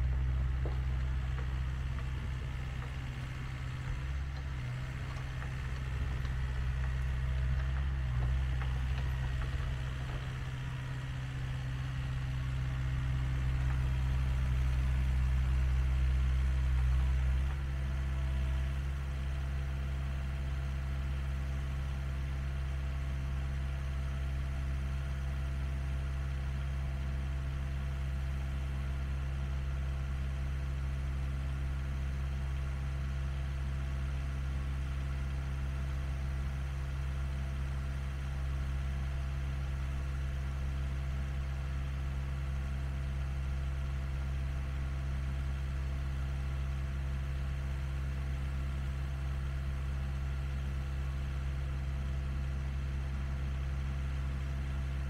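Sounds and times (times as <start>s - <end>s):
engine idling: 0.0s - 55.0s.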